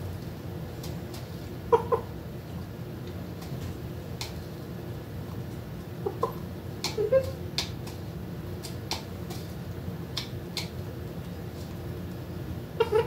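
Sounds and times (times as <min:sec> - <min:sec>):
soft chicken calls: 0:01.7 - 0:02.2, 0:12.7 - 0:13.0
beak pecking plastic cup: 0:06.1 - 0:08.0.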